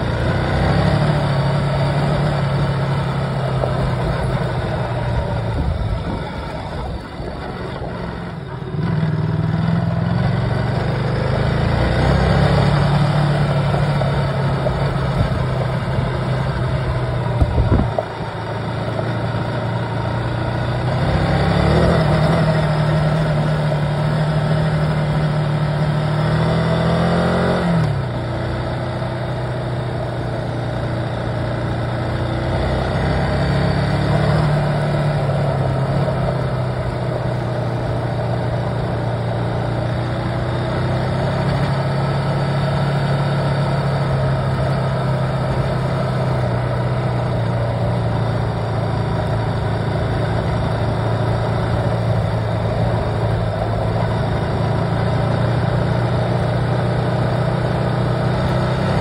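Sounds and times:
vehicle engine from inside cabin: 0.0s - 59.0s.

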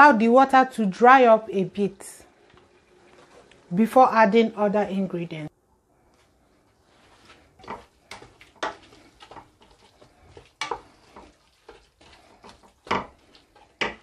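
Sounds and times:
spinach frying in oil: 0.0s - 4.5s, 6.9s - 14.0s
wooden spoon scraping a pot: 2.4s - 3.7s, 6.6s - 14.0s.

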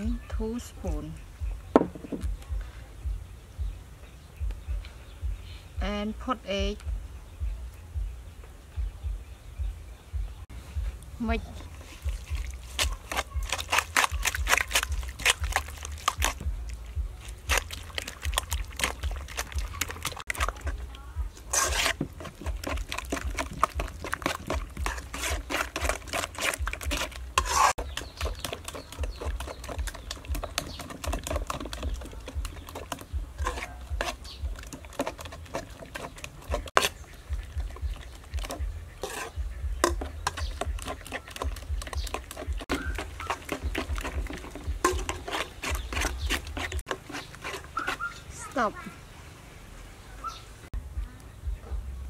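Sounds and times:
spoon beating eggs in metal bowl: 11.8s - 16.4s, 17.2s - 48.3s.

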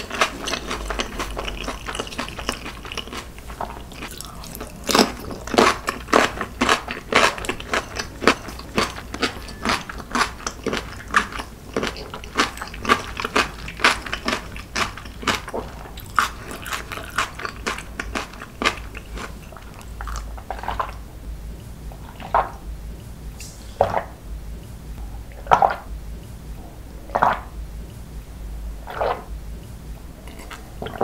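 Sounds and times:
chewing crunchy food: 0.0s - 21.1s, 21.9s - 22.7s, 30.2s - 31.0s
gulping water: 0.0s - 21.1s, 21.9s - 22.8s, 23.4s - 24.2s, 25.1s - 26.0s, 26.8s - 27.9s, 28.7s - 29.4s, 30.2s - 31.0s.

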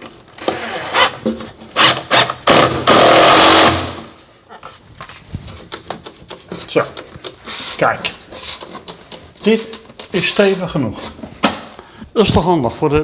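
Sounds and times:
impact driver driving screw: 1.8s - 4.1s.

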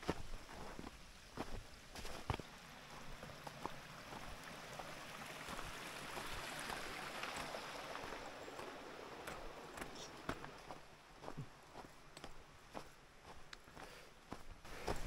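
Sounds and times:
stream trickling among rocks: 0.0s - 12.6s
footsteps on snow: 0.0s - 15.0s.

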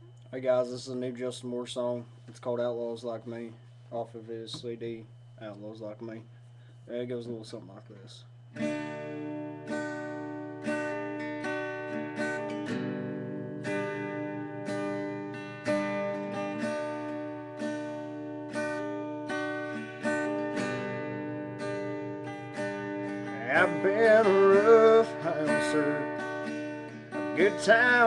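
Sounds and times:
acoustic guitar chords: 8.4s - 28.0s.

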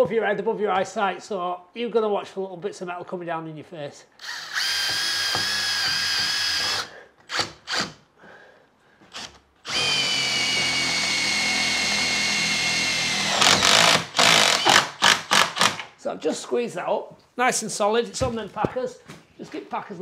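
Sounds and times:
cordless drill whining: 4.2s - 8.0s, 9.1s - 15.8s.

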